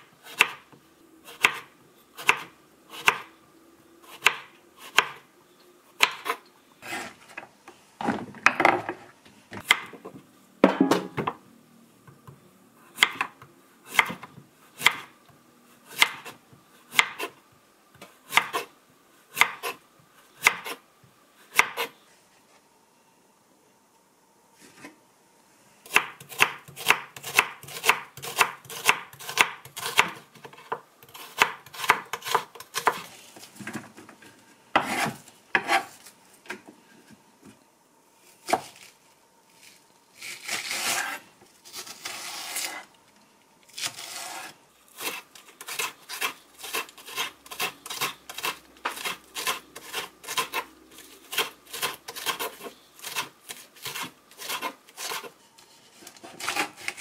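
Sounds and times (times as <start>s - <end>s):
knife scraping cutting board: 6.2s - 7.3s, 34.8s - 36.1s, 39.6s - 42.9s, 43.8s - 57.0s
knife chopping on cutting board: 34.8s - 35.9s.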